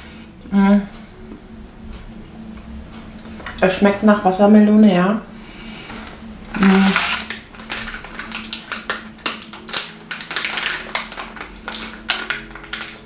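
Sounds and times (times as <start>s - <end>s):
plastic bag crinkling: 5.9s - 13.0s
person humming: 6.2s - 7.7s.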